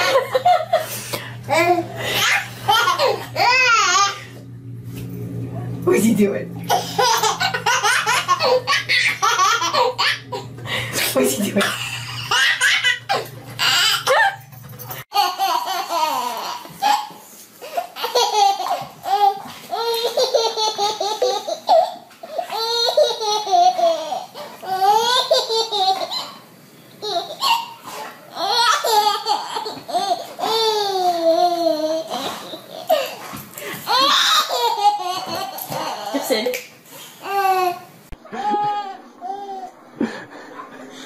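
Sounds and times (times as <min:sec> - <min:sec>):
adult laughing: 0:00.0 - 0:01.1, 0:38.2 - 0:39.2
baby giggling: 0:01.5 - 0:04.2, 0:06.7 - 0:10.5, 0:11.6 - 0:14.4, 0:15.1 - 0:26.4, 0:33.9 - 0:36.2, 0:37.2 - 0:40.7.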